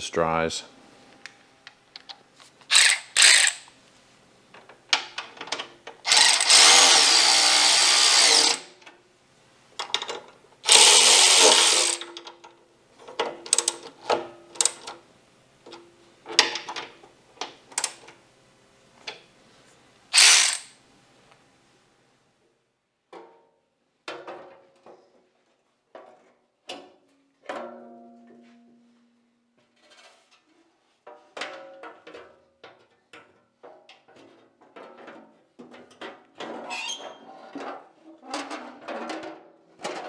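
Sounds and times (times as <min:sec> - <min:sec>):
cordless electric ratchet running: 0:02.7 - 0:03.7, 0:06.1 - 0:08.7, 0:10.7 - 0:12.1, 0:20.1 - 0:20.8.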